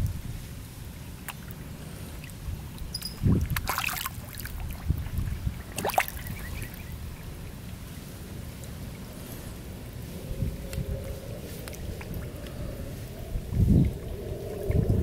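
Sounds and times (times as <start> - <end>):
fish splashing in pond: 1.1 - 7.5.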